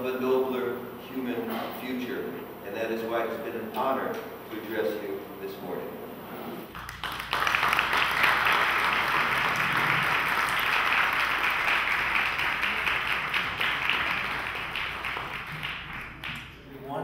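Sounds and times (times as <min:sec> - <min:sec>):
audience applauding: 0:06.7 - 0:16.6.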